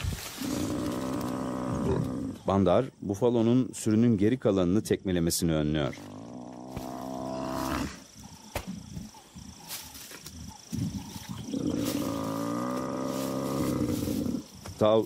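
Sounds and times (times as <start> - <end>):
buffalo bellowing in distress: 11.3 - 14.5.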